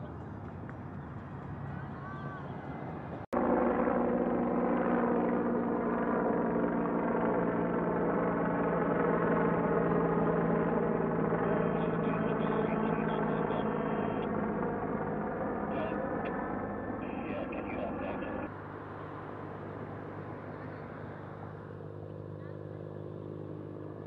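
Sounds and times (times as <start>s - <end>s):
helicopter flying low overhead: 0.0s - 24.0s.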